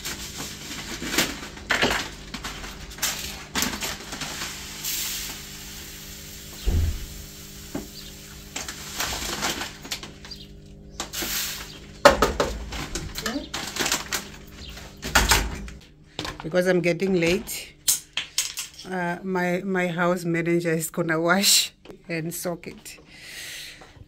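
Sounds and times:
plastic packet crinkling: 0.0s - 5.4s, 12.7s - 14.8s
lentils pouring into plastic cup: 0.0s - 6.5s, 7.2s - 10.0s, 11.1s - 11.6s.

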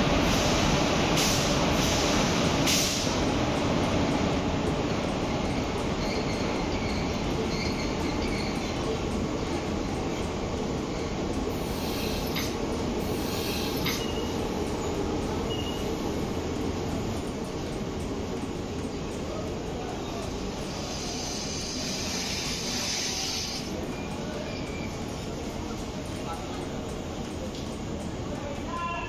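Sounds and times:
train rumbling on rails: 0.0s - 29.0s
train wheels squealing: 5.4s - 9.0s, 10.9s - 16.2s, 19.8s - 26.5s.

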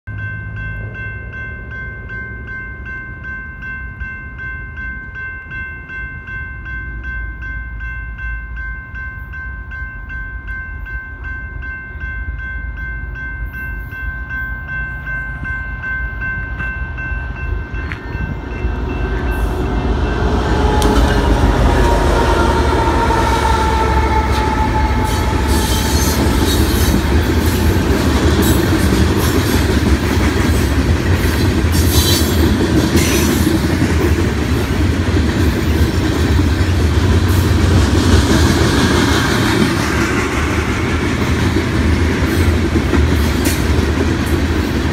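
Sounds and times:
crossing warning bell ringing: 0.1s - 44.9s
freight train rumble: 0.1s - 44.9s.

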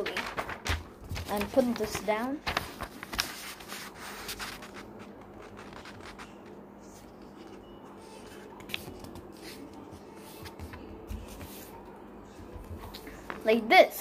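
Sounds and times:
sharp paper tick: 0.0s - 3.7s
paper rustling and rubbing: 0.0s - 11.8s.

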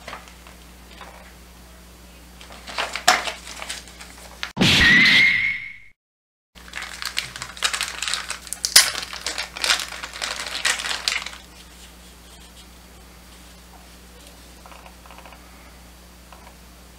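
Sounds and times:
plastic bag crinkling: 2.4s - 4.5s, 6.6s - 12.6s.

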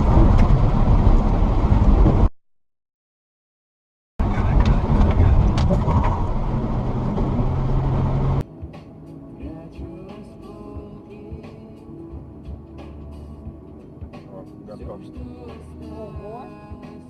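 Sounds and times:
car interior road rumble: 0.0s - 2.3s, 4.2s - 8.4s.

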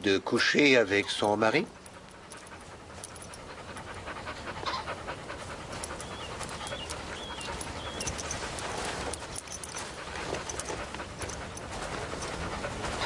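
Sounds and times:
dog panting fast: 0.4s - 13.0s
small bird chirping: 6.0s - 8.4s.

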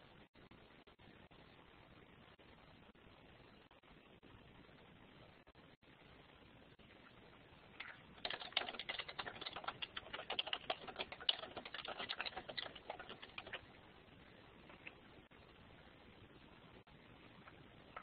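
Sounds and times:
computer keyboard typing: 7.8s - 13.7s.

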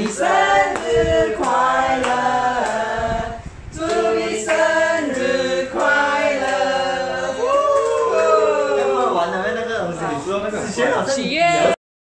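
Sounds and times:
group of people singing: 0.0s - 8.4s.

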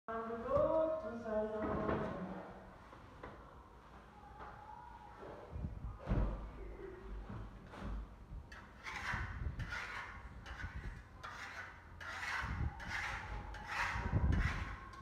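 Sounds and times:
trowel scraping plaster: 8.5s - 15.0s.

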